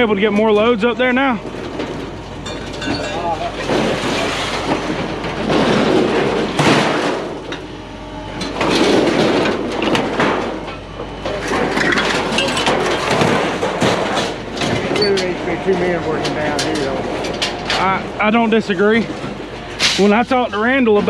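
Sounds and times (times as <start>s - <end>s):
sheet metal clanking and scraping: 0.2s - 21.0s.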